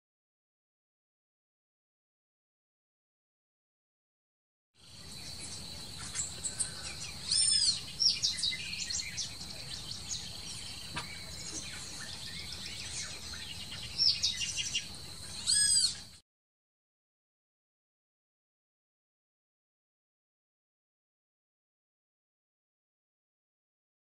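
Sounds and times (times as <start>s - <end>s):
loud arching bird calls: 4.8s - 16.2s
wild birds calling and chirping: 4.8s - 16.2s.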